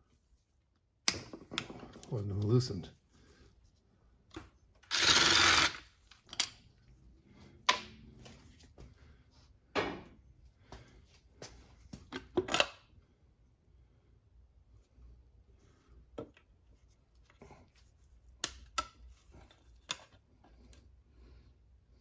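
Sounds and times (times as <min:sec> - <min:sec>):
power driver spinning screw: 0:04.8 - 0:05.9.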